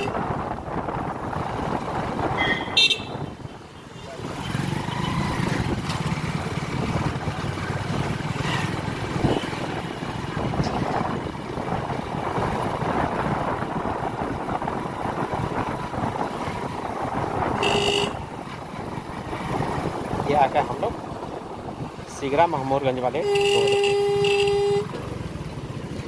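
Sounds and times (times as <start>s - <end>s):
road and wind noise: 0.0s - 26.0s
horn beep: 17.6s - 18.2s, 23.2s - 24.9s.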